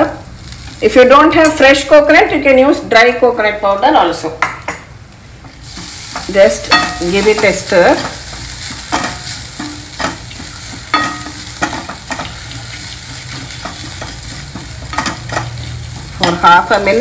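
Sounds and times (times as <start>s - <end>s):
frying sizzle: 0.0s - 17.0s
wooden spatula scraping pan: 5.6s - 17.0s.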